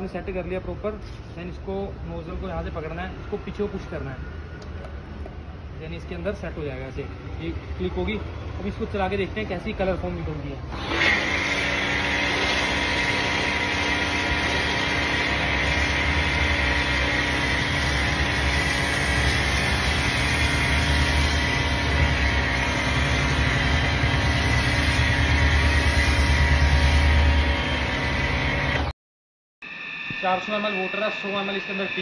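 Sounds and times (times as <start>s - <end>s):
pressure washer motor whining: 10.6s - 28.9s, 29.6s - 32.0s
foam spray hissing: 11.6s - 27.3s.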